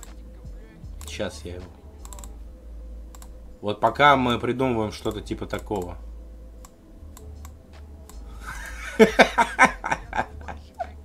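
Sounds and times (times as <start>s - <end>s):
faint clicks: 0.0s - 0.2s, 2.0s - 2.3s, 3.1s - 3.3s
man chuckling: 8.4s - 11.0s.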